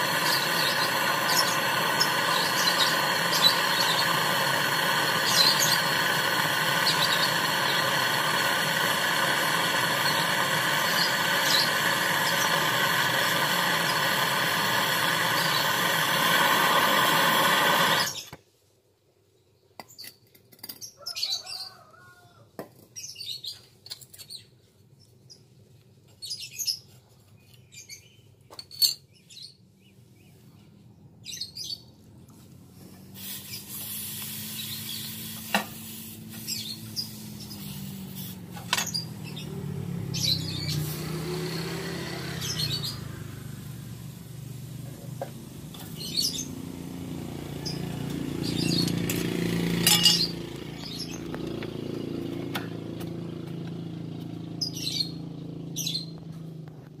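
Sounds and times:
torch burning with hiss: 0.0s - 18.4s, 33.1s - 39.4s, 40.1s - 51.4s.

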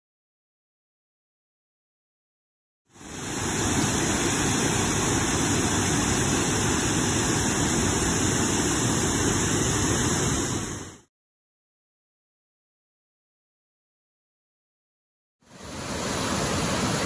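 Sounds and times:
waterfall rushing over rock: 2.9s - 11.1s, 15.5s - 17.0s.

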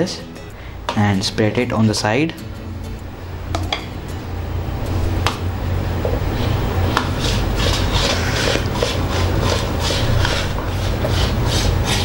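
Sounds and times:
steady low hum: 0.0s - 12.0s
palette knife scraping frosting: 7.0s - 12.0s.

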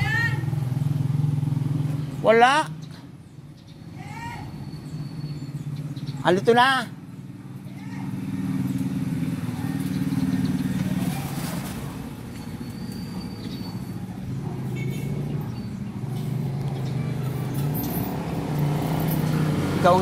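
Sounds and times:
motor vehicle engine running: 0.0s - 20.0s.

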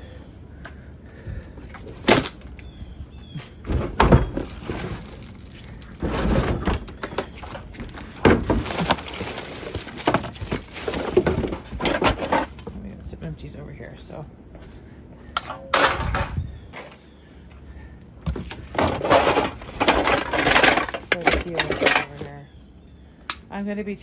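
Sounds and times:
plastic bags rustling: 3.8s - 12.6s, 18.6s - 22.4s
containers knocking against bins: 6.0s - 12.6s, 18.3s - 22.3s.

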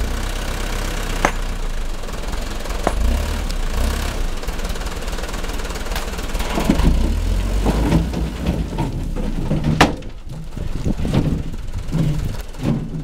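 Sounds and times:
truck engine revving hard: 0.0s - 9.7s
wheels spinning in gravel: 0.0s - 13.0s.

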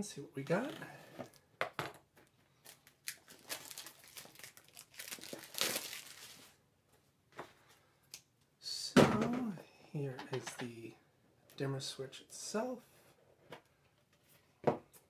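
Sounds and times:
packaging crinkling: 2.6s - 6.6s.

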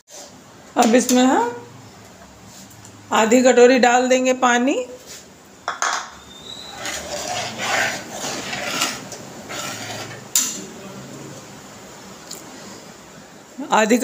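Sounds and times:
ladle scraping thick chutney: 6.2s - 10.8s.

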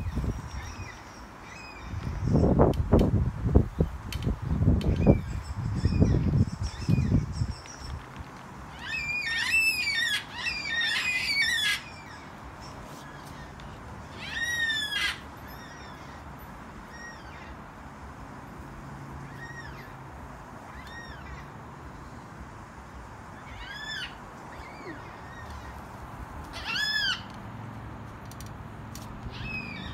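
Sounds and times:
cockatoos calling: 8.8s - 12.4s.

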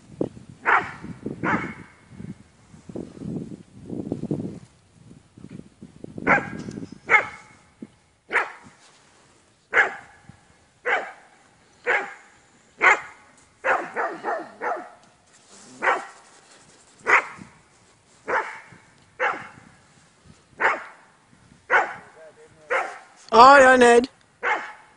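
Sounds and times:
dog barking: 0.6s - 1.8s, 6.3s - 7.5s, 8.3s - 8.6s, 9.7s - 10.2s, 10.8s - 11.2s, 11.8s - 15.0s, 15.8s - 16.2s, 17.0s - 17.4s, 18.3s - 19.6s, 20.6s - 21.0s, 21.7s - 22.1s, 22.7s - 23.1s, 24.4s - 24.9s.

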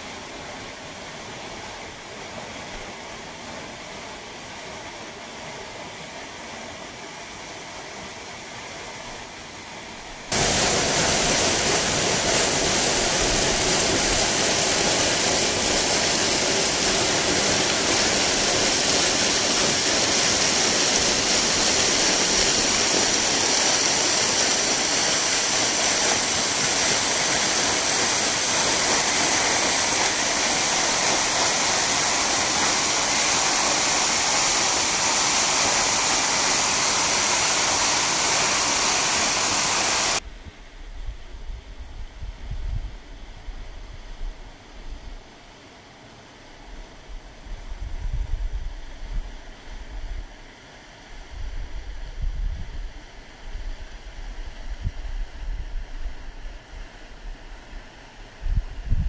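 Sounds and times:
waterfall rushing: 10.3s - 40.2s.

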